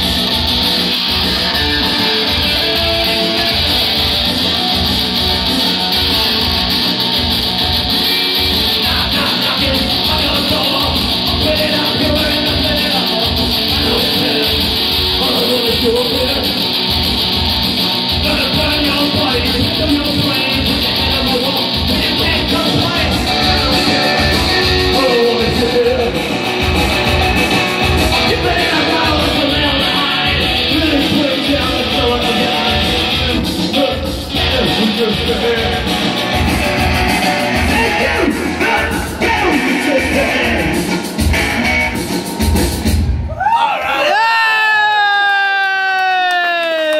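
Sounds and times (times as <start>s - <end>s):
electric guitar: 0.0s - 43.2s
live rock band playing: 0.0s - 43.3s
man singing: 8.0s - 16.7s, 18.1s - 40.9s.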